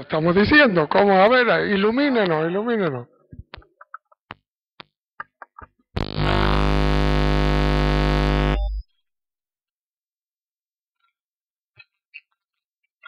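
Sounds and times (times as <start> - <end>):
distorted electronic buzz: 6.0 - 8.8.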